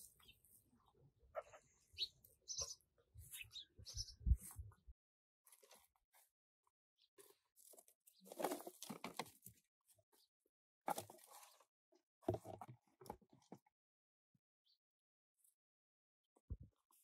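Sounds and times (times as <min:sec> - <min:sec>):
pots scraping among dry leaves: 0:05.5 - 0:06.3, 0:07.2 - 0:09.6.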